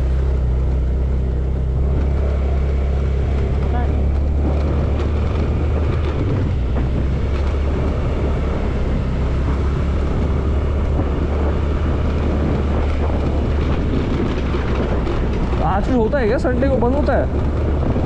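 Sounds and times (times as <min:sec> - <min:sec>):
road rumble: 0:00.0 - 0:18.0
scooter engine running: 0:00.0 - 0:18.0
wind noise on microphone: 0:00.0 - 0:18.0.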